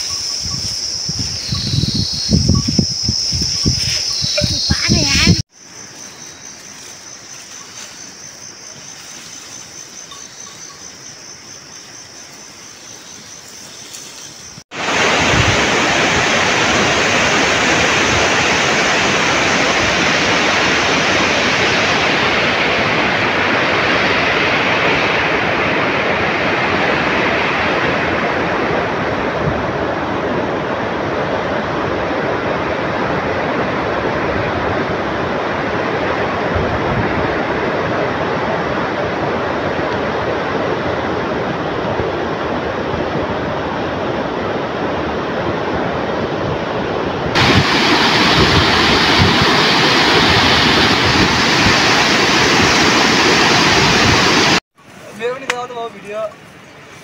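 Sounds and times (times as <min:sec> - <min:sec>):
insects chirring: 0:00.0 - 0:14.6
loud steady rushing noise: 0:14.7 - 0:56.1.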